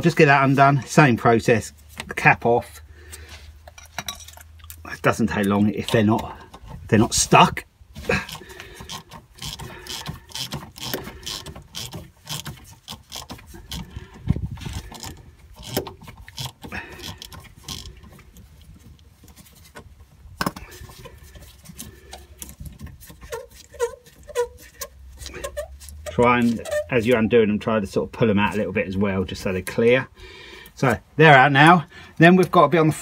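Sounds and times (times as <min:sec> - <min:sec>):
hand ratchet clicking: 0:08.2 - 0:18.0.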